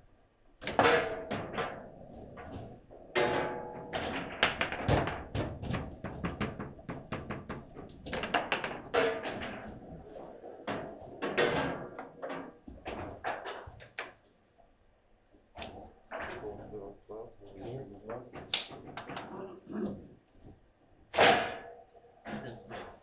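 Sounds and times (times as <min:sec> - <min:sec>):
foosball ball and figures knocking: 0:00.6 - 0:14.2, 0:18.2 - 0:19.3, 0:21.1 - 0:23.0.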